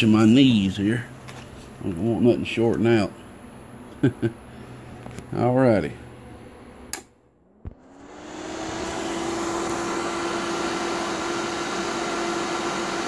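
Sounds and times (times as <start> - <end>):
cooling fan whooshing: 0.0 - 13.0
amplifier hum: 4.4 - 13.0
switch clicking: 6.9 - 7.1.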